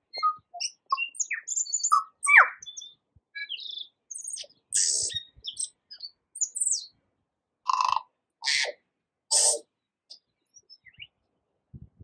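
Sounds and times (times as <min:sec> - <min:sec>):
bird singing: 0:00.0 - 0:07.0, 0:08.5 - 0:11.2
harsh wheezy bird note: 0:04.8 - 0:05.2, 0:09.3 - 0:09.6.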